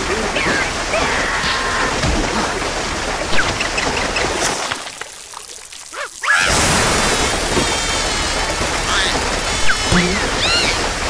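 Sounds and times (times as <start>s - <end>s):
cartoon water jet spraying: 6.0s - 10.9s
squeaky quacking cartoon noises: 8.9s - 10.9s.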